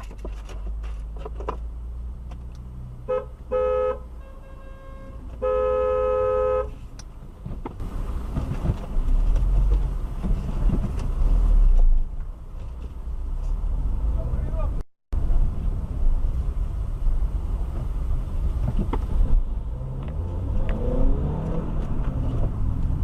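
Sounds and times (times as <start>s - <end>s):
car engine and road rumble: 0.0s - 23.0s
car horn honking: 3.0s - 6.8s.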